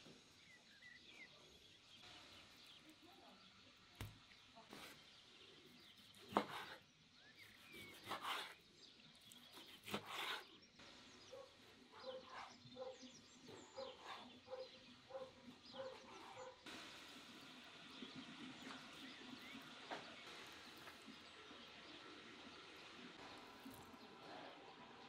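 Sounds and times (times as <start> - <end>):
birds chirping faintly: 0.0 - 25.0
knife cutting on wooden board: 6.1 - 6.8, 7.6 - 8.6, 9.5 - 10.5.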